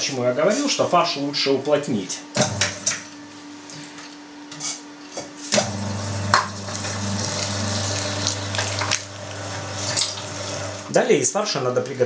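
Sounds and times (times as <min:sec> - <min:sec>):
electric meat grinder motor hum: 0:05.5 - 0:10.9.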